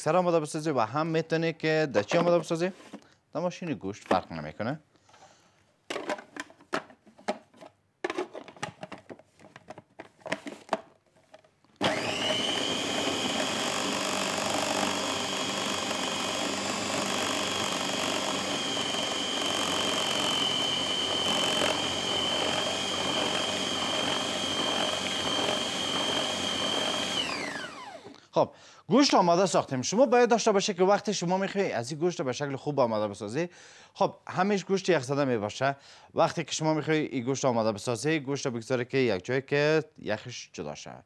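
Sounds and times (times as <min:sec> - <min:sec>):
food processor whining: 0:11.8 - 0:28.2.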